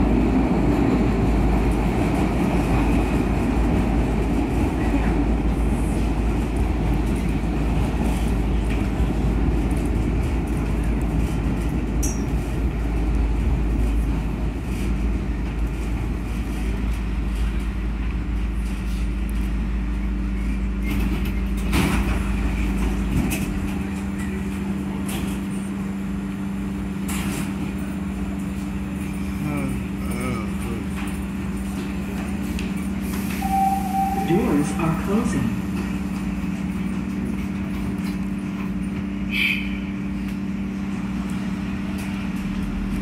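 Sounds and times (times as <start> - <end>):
subway wheels rumbling on rail: 0.0 - 43.0.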